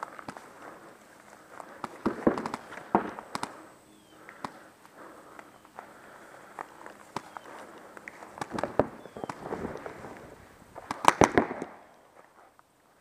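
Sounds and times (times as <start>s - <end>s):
paintball markers firing: 1.5s - 3.7s, 4.3s - 4.6s, 6.6s - 12.0s.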